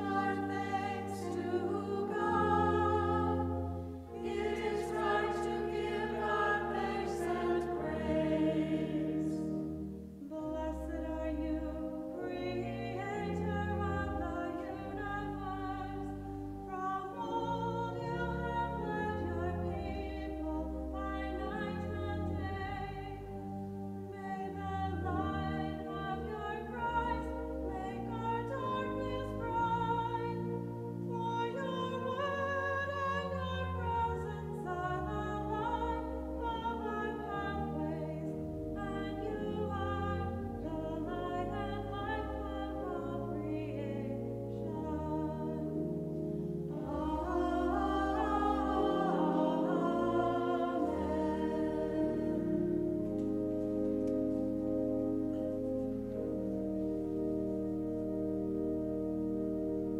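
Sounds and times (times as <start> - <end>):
choir singing: 0.0 - 23.3, 24.1 - 54.0
sustained low bass notes: 34.5 - 59.9.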